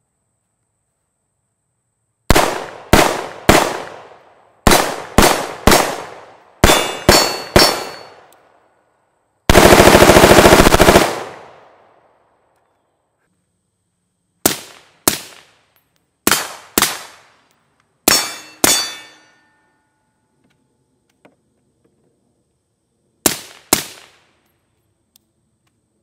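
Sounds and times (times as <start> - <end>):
suppressed rifle shots: 2.3 - 4.1.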